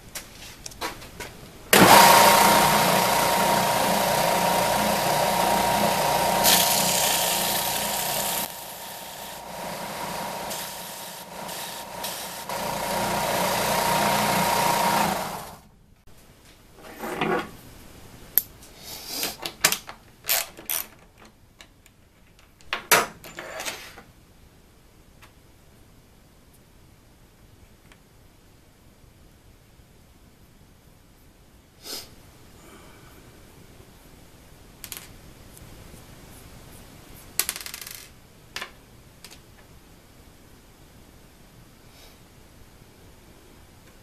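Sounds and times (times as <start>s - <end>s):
belt sander running: 1.8s - 15.7s.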